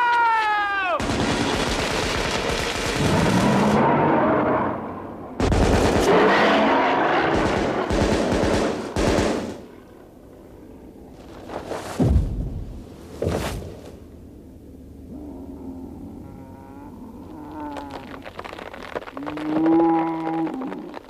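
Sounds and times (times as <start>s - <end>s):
rapid rifle fire: 1.0s - 3.8s, 5.4s - 9.7s
dinosaur roaring: 15.1s - 18.1s.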